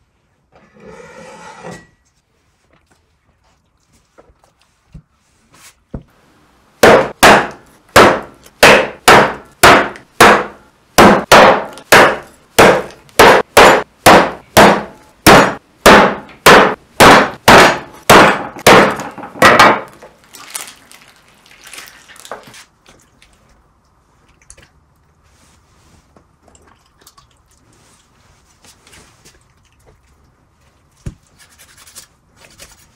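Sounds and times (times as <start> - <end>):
handling and rubbing sounds: 0.1 - 6.2, 25.2 - 26.4, 27.7 - 29.5, 30.4 - 32.9
cleaver chopping on wooden board: 6.8 - 19.9.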